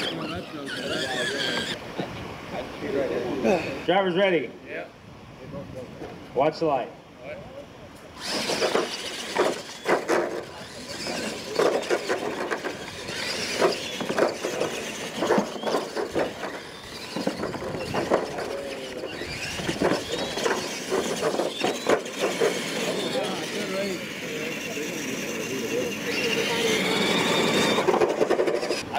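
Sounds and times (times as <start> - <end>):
toy truck motors whining: 0.0 - 1.8, 8.2 - 28.9
trucks knocking and clattering: 8.2 - 23.6, 26.1 - 28.9.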